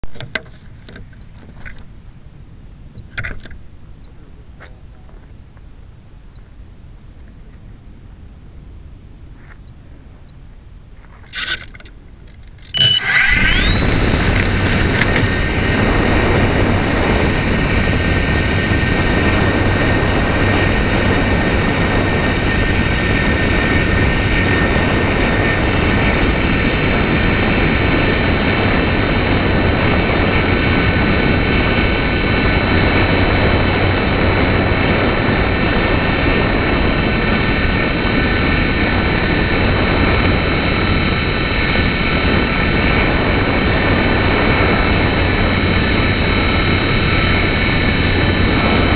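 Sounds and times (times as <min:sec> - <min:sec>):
electric motor whine: 0:12.6 - 0:48.9
airflow rushing over microphone: 0:12.8 - 0:38.3.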